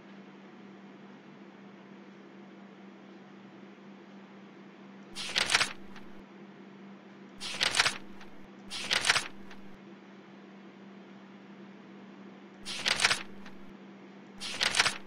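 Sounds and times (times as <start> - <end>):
mouse scroll wheel clicking: 5.2 - 6.2, 7.4 - 9.8, 12.6 - 13.7, 14.4 - 15.0.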